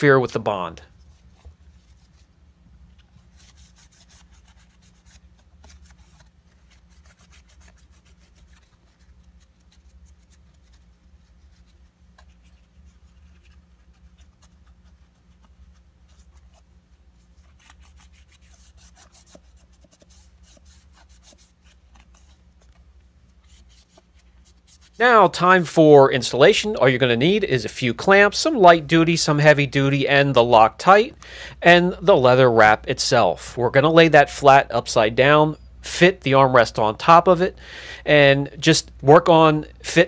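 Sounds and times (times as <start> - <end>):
low steady hum: 0.0 - 40.0
wipe rubbing on plastic: 0.9 - 2.4, 3.0 - 25.0.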